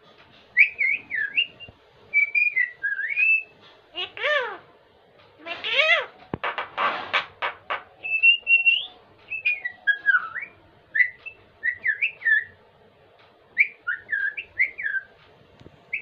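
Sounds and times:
bird whistled calls: 0.6 - 3.5, 8.0 - 12.6, 13.6 - 15.1.

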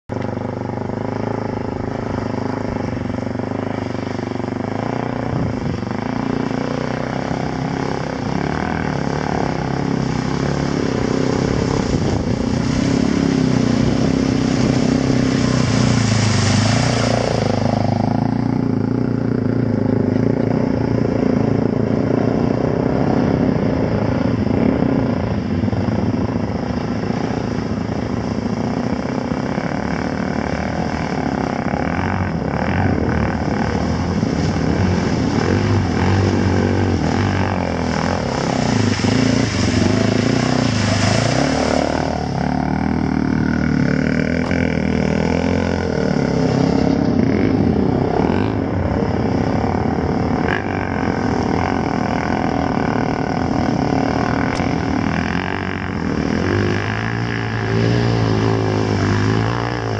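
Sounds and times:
dirt bike engine running: 0.1 - 59.9
water spraying: 8.0 - 18.7, 33.4 - 46.9.

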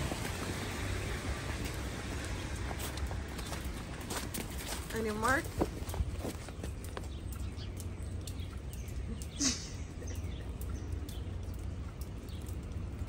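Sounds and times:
dog booties tapping on wet pavement: 0.0 - 9.4
low city rumble: 0.0 - 13.0.

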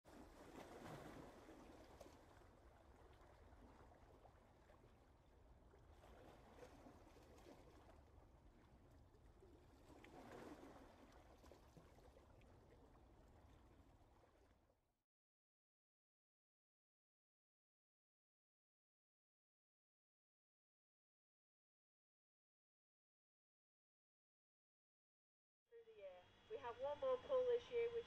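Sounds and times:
faint background hiss: 25.8 - 28.0.

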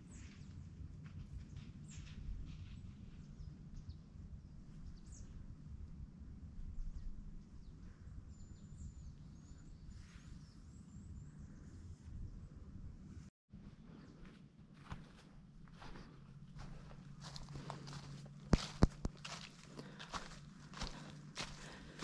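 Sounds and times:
wind rumble on microphone: 0.0 - 13.3.

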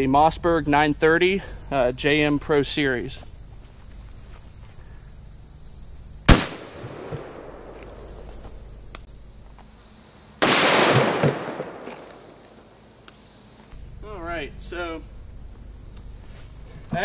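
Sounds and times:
shotgun blast with echo: 6.3 - 7.7, 10.4 - 12.0.

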